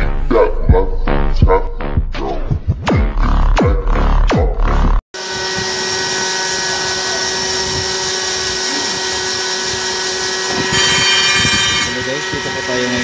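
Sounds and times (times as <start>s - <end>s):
grinding wheel whine on steel: 5.2s - 13.0s.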